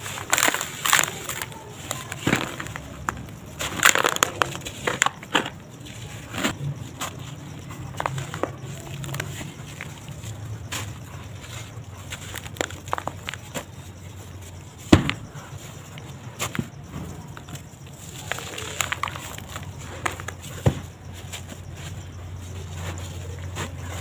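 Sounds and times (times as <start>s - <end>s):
dry sand-cement mix crunching: 0.0s - 24.0s.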